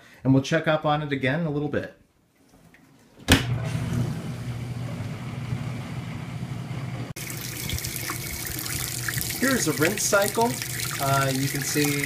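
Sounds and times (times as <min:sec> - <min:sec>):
dishwasher motor hum: 0:03.2 - 0:12.0
rushing water: 0:07.2 - 0:12.0
water splashing into sink: 0:07.2 - 0:12.0.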